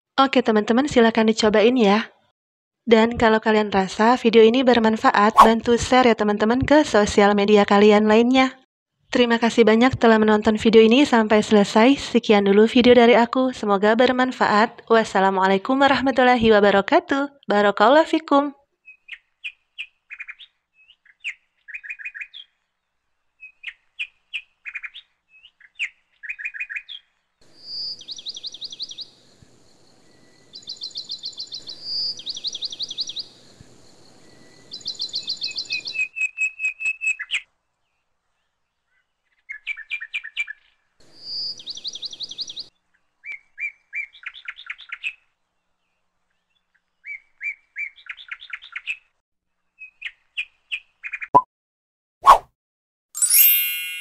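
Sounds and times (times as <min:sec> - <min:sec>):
small birds chirping and trilling: 0:23.4 - 0:36.2, 0:38.4 - 0:49.1.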